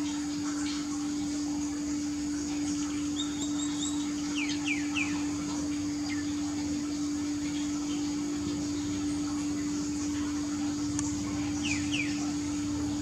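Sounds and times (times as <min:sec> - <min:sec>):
steady low hum: 0:00.0 - 0:13.0
bird chirps: 0:03.1 - 0:05.3, 0:11.6 - 0:12.3.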